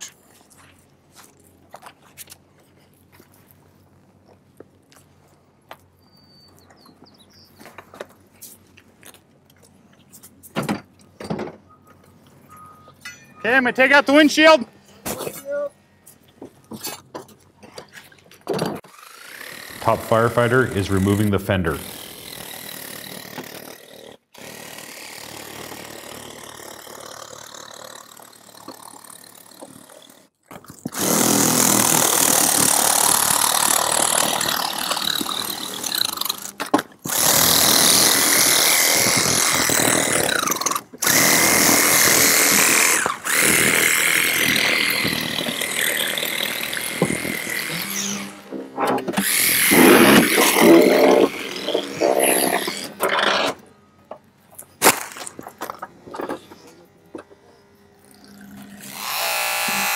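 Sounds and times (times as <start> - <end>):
hydraulic tool hissing and whining: 49.1 - 53.5, 58.5 - 59.9.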